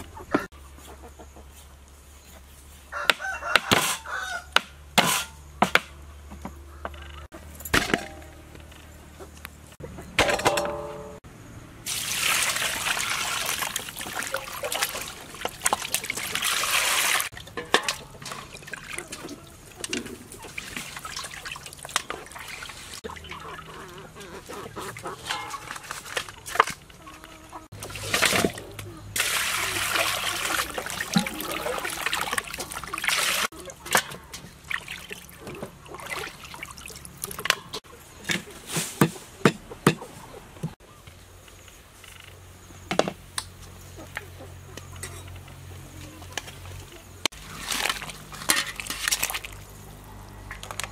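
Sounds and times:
meat and metal bowls clinking: 0:07.3 - 0:09.4, 0:10.2 - 0:11.2, 0:12.9 - 0:27.0, 0:27.6 - 0:38.5, 0:46.3 - 0:49.8
water splashing and sloshing: 0:11.8 - 0:39.0, 0:44.9 - 0:50.9
water pouring into metal bowl: 0:11.9 - 0:19.4, 0:29.2 - 0:33.5.

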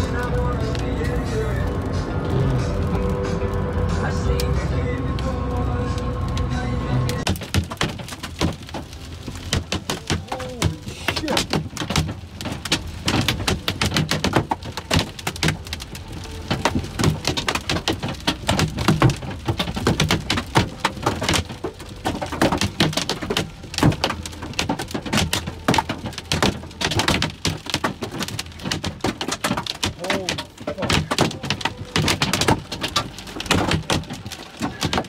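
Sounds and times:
hailstones pelting car roof: 0:00.0 - 0:35.0.

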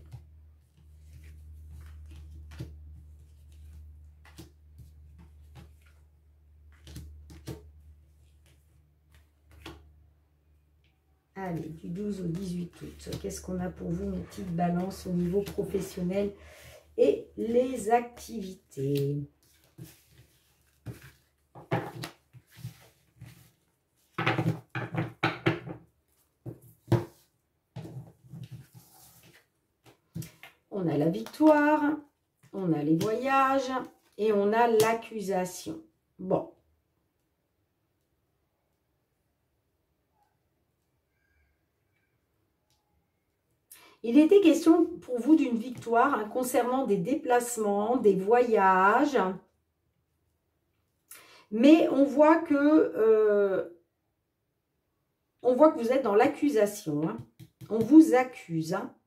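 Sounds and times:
cards shuffling: 0:19.4 - 0:23.6.

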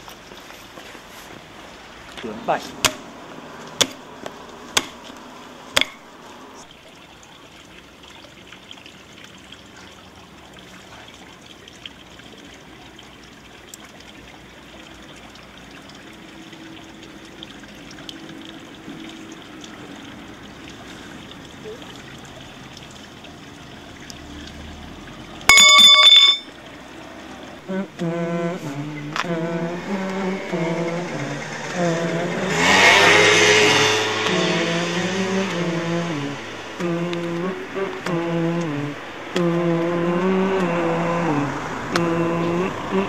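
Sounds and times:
water trickling: 0:00.0 - 0:43.0
sharp knocks: 0:04.8 - 0:05.0.

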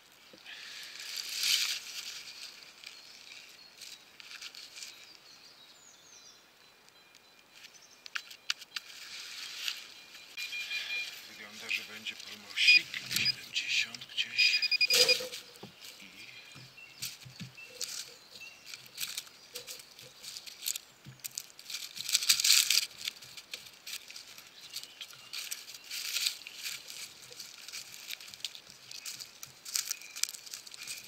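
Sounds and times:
dry leaves crackling: 0:00.0 - 0:05.9, 0:07.5 - 0:31.0
shovel scraping into soil: 0:14.8 - 0:15.6.

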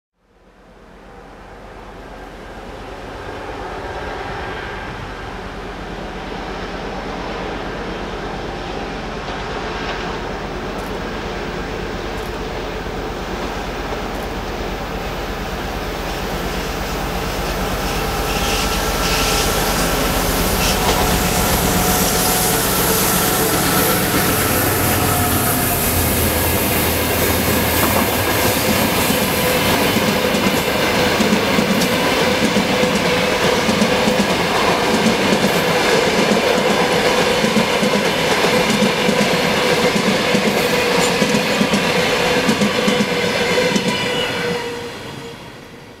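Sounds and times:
diesel locomotive engine rumbling: 0:00.4 - 0:46.0
wheel squeal: 0:17.4 - 0:26.2
wheels clacking over rail joints: 0:26.3 - 0:44.1.

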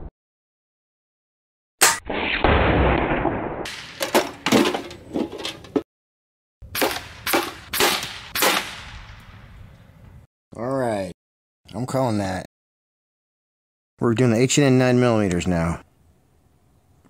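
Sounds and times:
sharp cracks: 0:01.8 - 0:04.7, 0:06.7 - 0:09.9
air rifle firing: 0:06.7 - 0:09.8.

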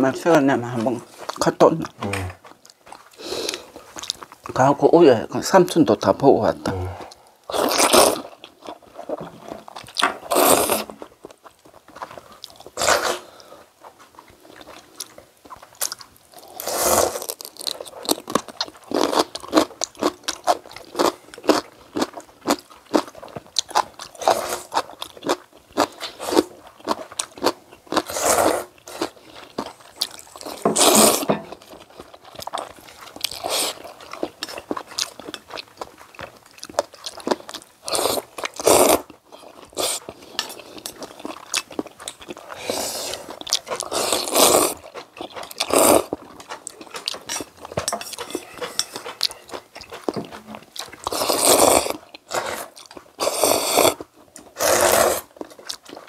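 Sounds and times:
wet chewing: 0:00.2 - 0:04.7, 0:06.0 - 0:56.0
slurping noodles and broth: 0:10.3 - 0:11.0, 0:12.7 - 0:13.7, 0:16.4 - 0:17.4, 0:28.0 - 0:29.5, 0:30.4 - 0:31.8, 0:32.8 - 0:34.6, 0:37.8 - 0:39.1, 0:42.4 - 0:55.4.

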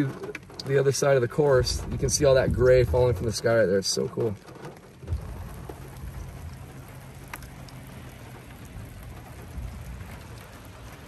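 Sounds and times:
rain falling on a car: 0:00.0 - 0:11.0
low rumble: 0:01.4 - 0:03.4, 0:05.0 - 0:11.0.

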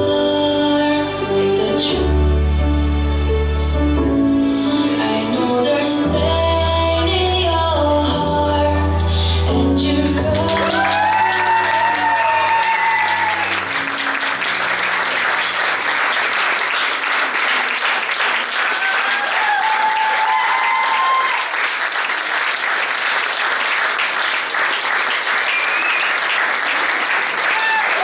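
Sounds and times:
dance music: 0:09.5 - 0:15.6
guests applauding: 0:10.4 - 0:28.0.

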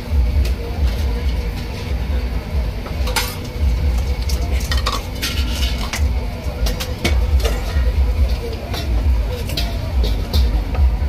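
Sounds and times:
steady low rumble: 0:00.0 - 0:11.0
utensils clinking in metal bowl: 0:03.0 - 0:10.8.

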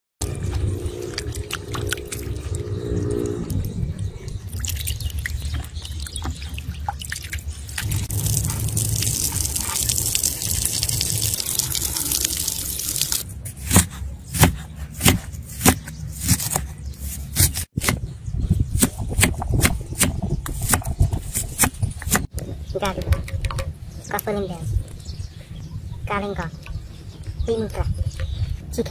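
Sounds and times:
water splashing and dripping: 0:00.2 - 0:13.3
knife chopping on wooden board: 0:13.6 - 0:16.6.

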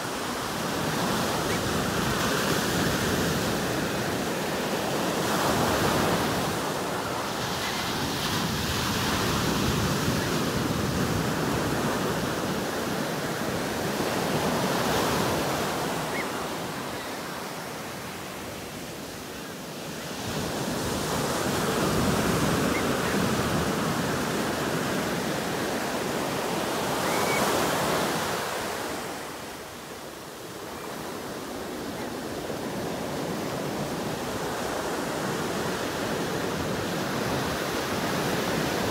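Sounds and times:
ocean surf breaking on shore: 0:00.0 - 0:38.9.

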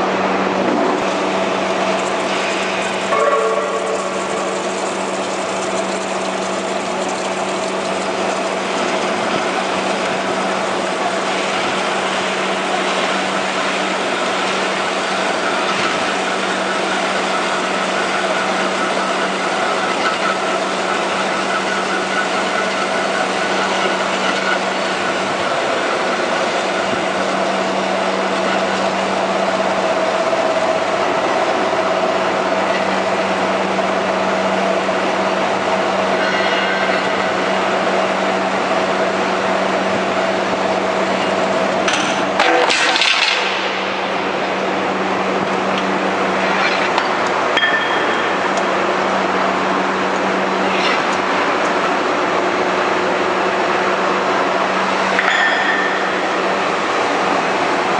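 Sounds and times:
band saw cutting metal bars: 0:02.0 - 0:29.7.

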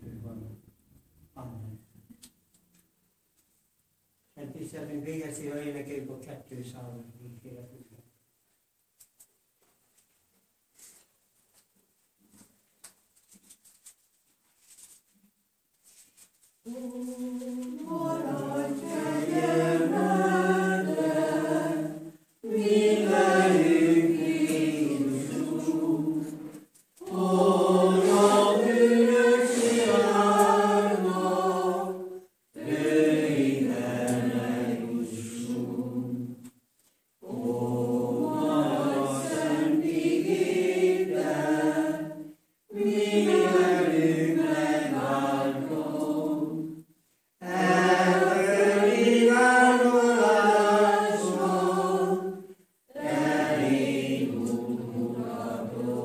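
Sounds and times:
congregation singing a hymn: 0:16.7 - 0:36.6, 0:37.2 - 0:56.0.

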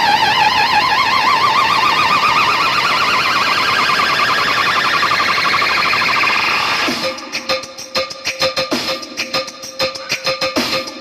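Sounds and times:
siren-like electronic synth tone: 0:00.0 - 0:07.3.

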